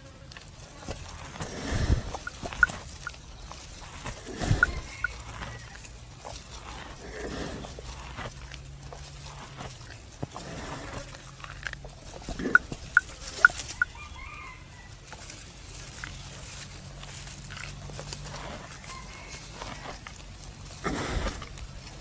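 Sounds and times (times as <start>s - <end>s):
buffalo chewing cud: 0.0s - 22.0s
chicken clucking: 1.2s - 5.8s, 12.1s - 14.6s.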